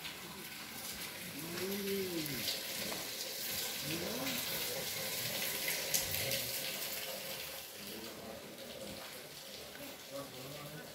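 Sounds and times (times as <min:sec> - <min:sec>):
running water hiss: 0:00.0 - 0:10.9
person calling out: 0:01.4 - 0:02.4.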